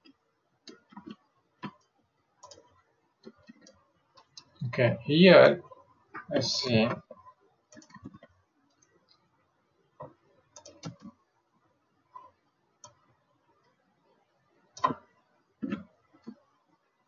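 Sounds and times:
keyboard and mouse clicks: 0:00.0 - 0:04.6, 0:06.2 - 0:09.2, 0:10.0 - 0:11.2, 0:12.2 - 0:13.8, 0:14.7 - 0:16.5.

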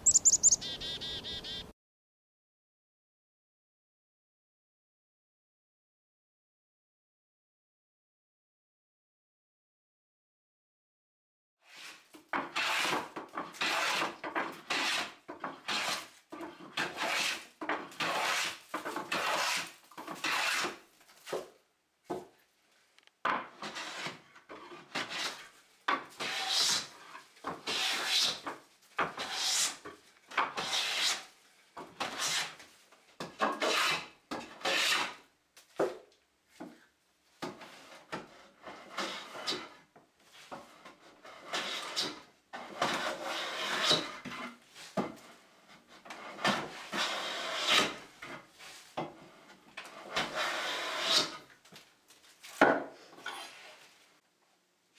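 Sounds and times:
hand plane shaving wood: 0:11.7 - 0:21.5, 0:23.5 - 0:31.3, 0:32.0 - 0:32.6, 0:33.4 - 0:35.2, 0:37.6 - 0:39.8, 0:40.4 - 0:44.6, 0:45.2 - 0:51.5.

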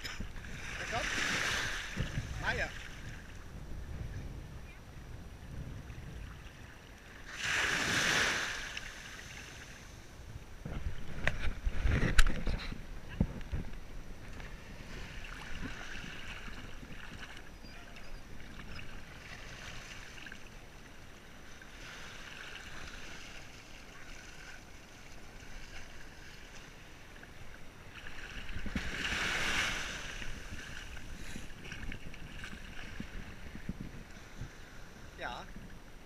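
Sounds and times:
sea water lapping: 0:00.0 - 0:03.4, 0:05.8 - 0:10.0, 0:11.7 - 0:35.6
rush of water: 0:00.0 - 0:03.5, 0:05.9 - 0:36.0.

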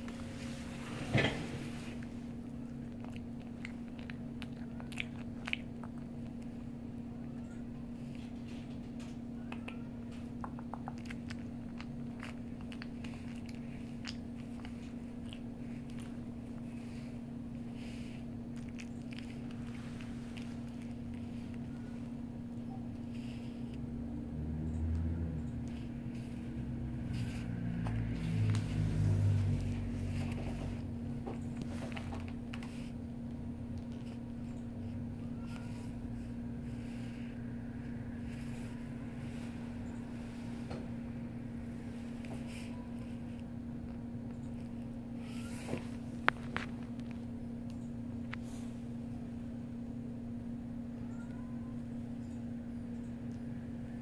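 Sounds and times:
steady low hum: 0:00.0 - 0:54.0
dog chewing jerky: 0:02.4 - 0:06.9, 0:10.8 - 0:21.8.

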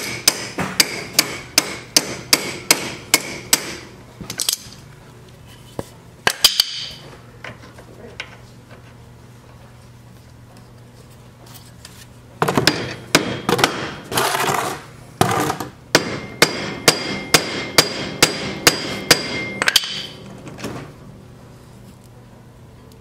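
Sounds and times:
hammer tapping on metal: 0:15.9 - 0:20.1.

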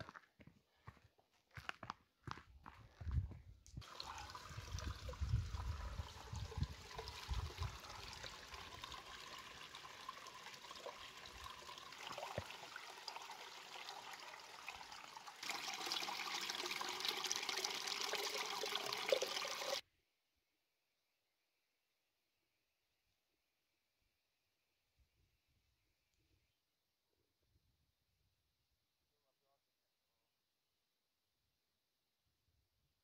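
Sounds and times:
running water rushing: 0:03.8 - 0:19.8.

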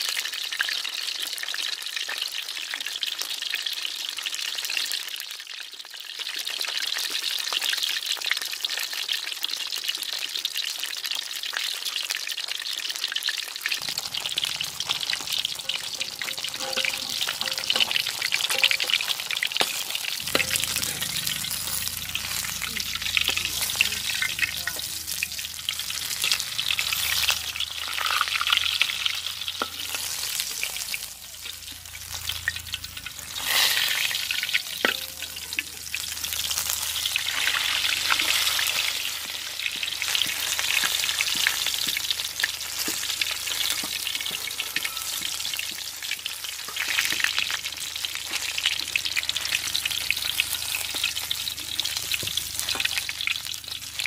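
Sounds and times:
fish sizzling in oil: 0:00.0 - 0:54.0
metal spatula scraping pan: 0:13.8 - 0:39.4.

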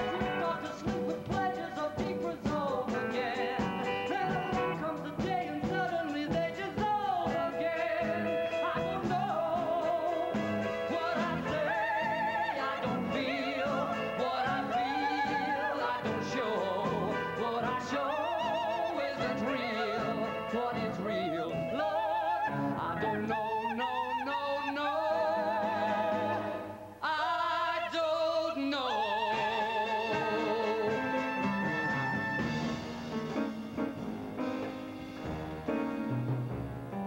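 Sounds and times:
orchestral and band accompaniment: 0:00.0 - 0:18.1, 0:29.4 - 0:37.0.

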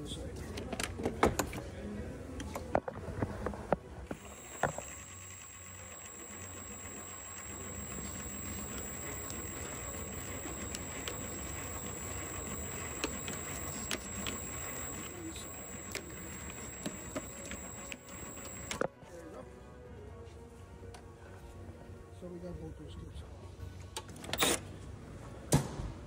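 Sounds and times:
thin high-pitched whine: 0:04.1 - 0:18.9.

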